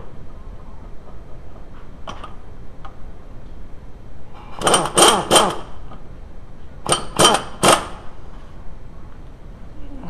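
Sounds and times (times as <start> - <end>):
impact wrench rattling bursts: 4.5 - 5.8, 6.8 - 8.1.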